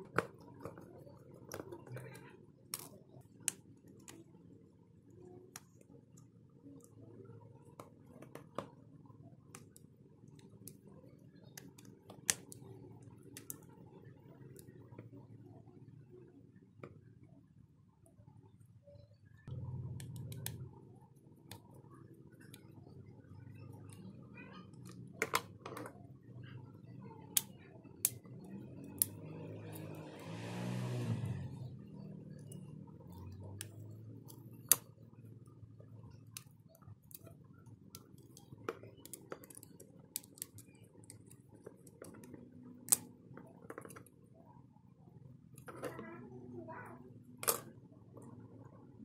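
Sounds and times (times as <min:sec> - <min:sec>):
low hum: 0:18.4 - 0:24.4.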